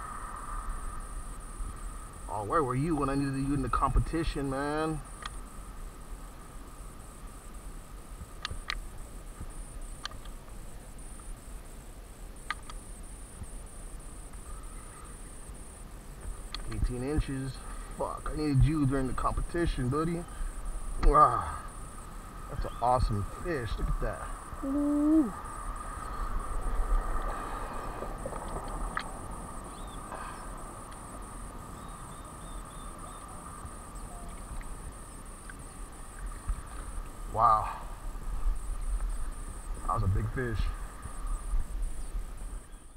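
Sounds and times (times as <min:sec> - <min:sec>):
insects trilling: 0:00.0 - 0:42.9
sharp click: 0:08.4 - 0:08.8, 0:12.4 - 0:12.8.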